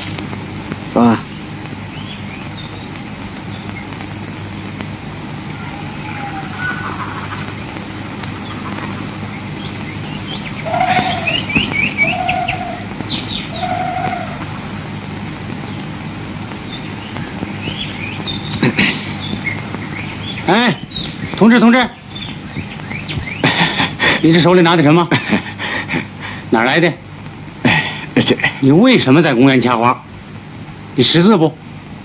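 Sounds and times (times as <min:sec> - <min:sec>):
birds chirping: 0:00.0 - 0:31.4
film soundtrack hum and hiss: 0:00.0 - 0:32.0
short lower bird calls: 0:05.3 - 0:15.9, 0:16.6 - 0:24.4.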